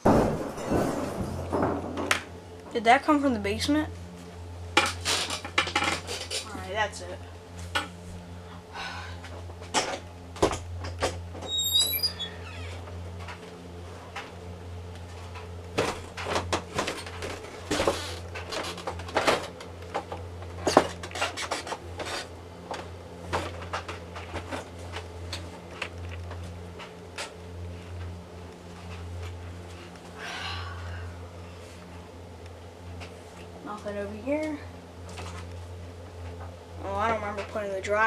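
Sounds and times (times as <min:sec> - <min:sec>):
steady low hum: 0:00.0 - 0:38.0
high squeak: 0:11.4 - 0:12.7.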